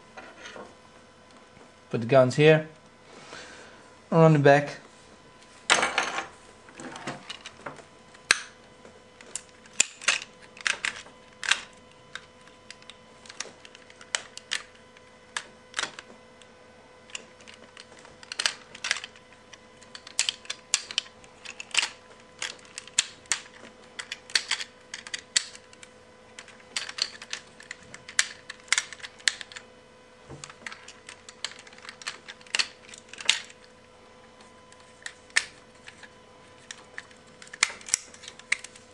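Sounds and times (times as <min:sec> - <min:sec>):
plastic toy parts clicking: 0:09.3 - 0:14.7, 0:17.1 - 0:19.2, 0:19.8 - 0:29.6, 0:30.4 - 0:33.6, 0:35.0 - 0:38.8.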